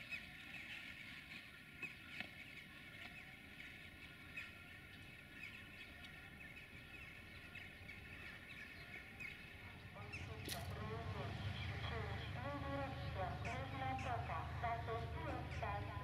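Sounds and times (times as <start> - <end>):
faint bird chirping: 0.0 - 16.0
low background rumble: 5.4 - 16.0.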